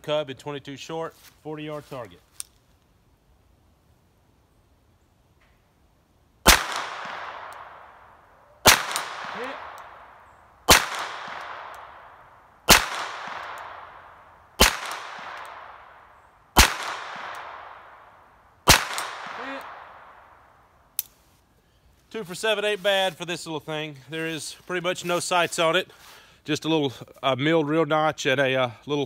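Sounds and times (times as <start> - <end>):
pistol shots with echo: 6.4 - 18.1, 18.7 - 20.4.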